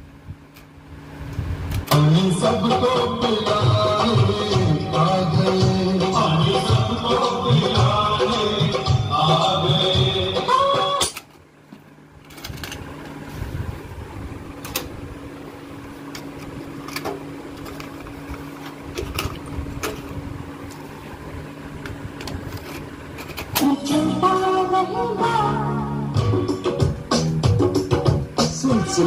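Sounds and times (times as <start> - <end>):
steady hum: 0.0 - 29.0
music from a cassette player: 1.8 - 11.3, 23.4 - 29.0.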